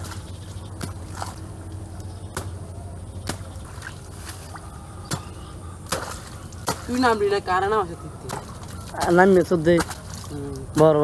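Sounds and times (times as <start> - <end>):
wet squelching: 3.2 - 11.0.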